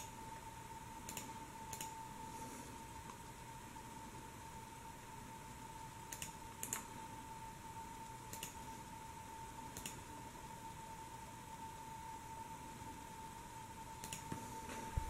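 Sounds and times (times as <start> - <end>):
steady high-pitched whine: 0.0 - 15.0
computer mouse clicks: 1.0 - 2.0, 6.1 - 6.9, 8.2 - 8.6, 9.7 - 10.0, 14.0 - 14.5.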